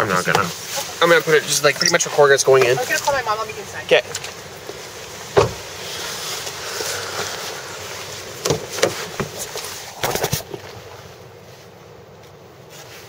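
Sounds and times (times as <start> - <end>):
handling rustle: 0.0 - 13.0.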